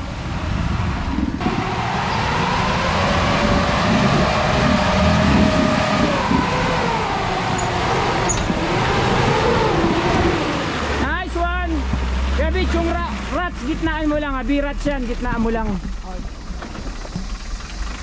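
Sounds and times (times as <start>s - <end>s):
engine whine: 0.0s - 18.0s
off-road vehicle engine under load: 0.0s - 18.0s.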